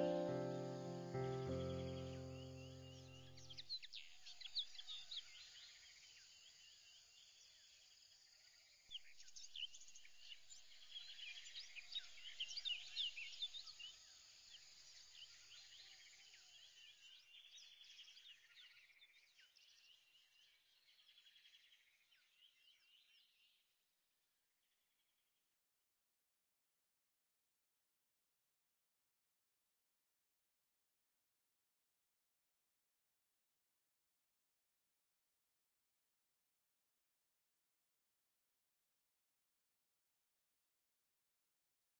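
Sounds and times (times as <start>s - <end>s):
small birds chirping: 0.0s - 8.4s, 9.0s - 23.6s.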